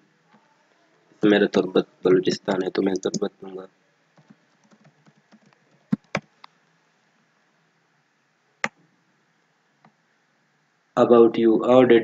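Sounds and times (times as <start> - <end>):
keyboard typing: 2.3 - 3.3, 4.2 - 6.3.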